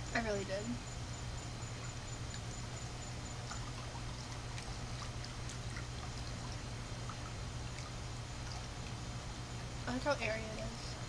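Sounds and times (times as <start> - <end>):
steady low hum: 0.0 - 11.0
faint ticks: 1.7 - 9.0.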